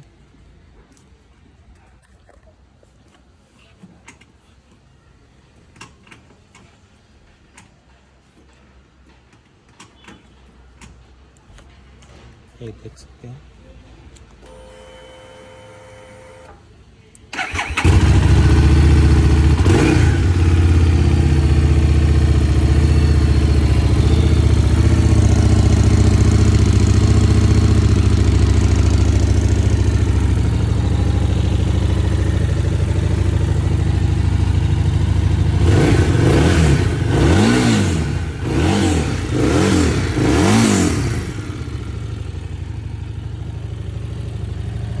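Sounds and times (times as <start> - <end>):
motorcycle engine starting and revving: 17.3 - 45.0.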